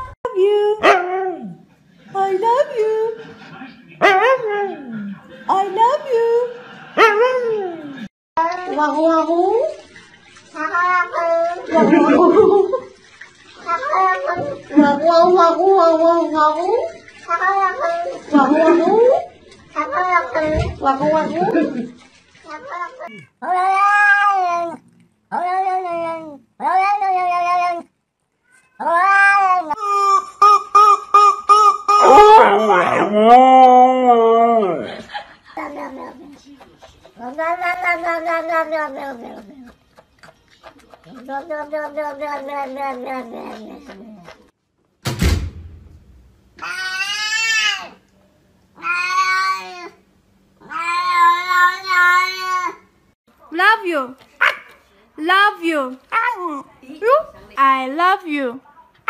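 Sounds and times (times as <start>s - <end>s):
cat meowing: 22.6s - 29.8s, 37.2s - 39.5s, 48.8s - 50.0s
thump: 45.0s - 46.4s.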